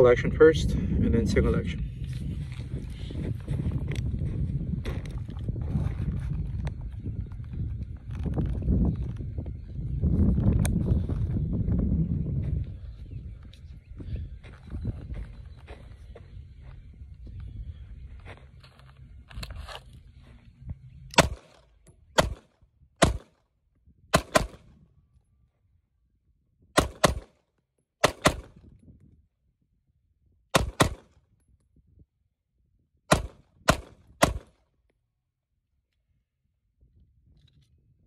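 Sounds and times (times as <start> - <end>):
pistol shots: 21.1 - 21.6, 22.2 - 23.3, 24.2 - 24.7, 26.8 - 27.4, 28.0 - 28.6, 30.6 - 31.1, 33.1 - 34.6.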